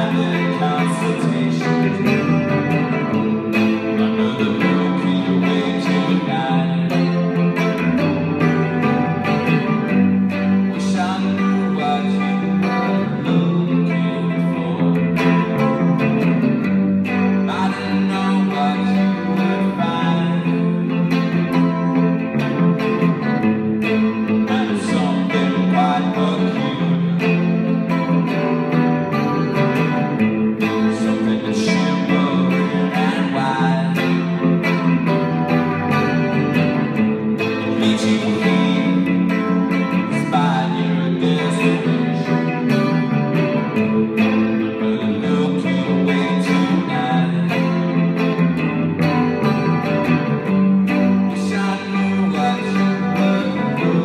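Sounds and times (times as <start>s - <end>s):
man singing into a microphone: 0.0s - 22.2s, 22.8s - 30.0s, 30.6s - 48.5s, 49.1s - 54.0s
electric bass guitar: 0.0s - 54.0s
electric guitar: 0.0s - 54.0s.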